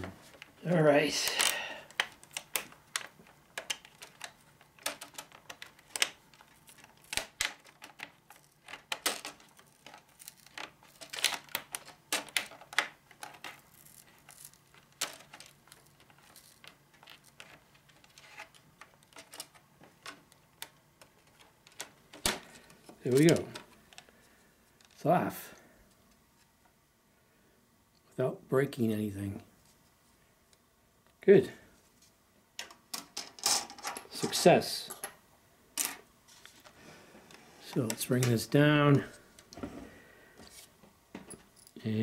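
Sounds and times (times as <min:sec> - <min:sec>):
plastic bezel clicking and crackling: 0:01.3 - 0:24.1.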